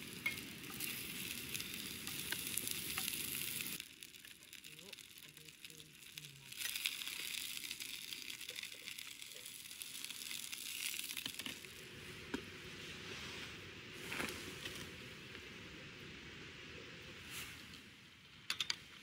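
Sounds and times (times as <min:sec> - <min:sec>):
vegetables sizzling in hot oil: 0:00.0 - 0:11.8.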